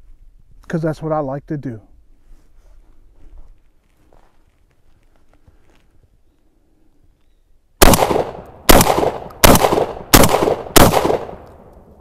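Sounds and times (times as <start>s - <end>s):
shotgun shots echoing: 7.8s - 11.7s.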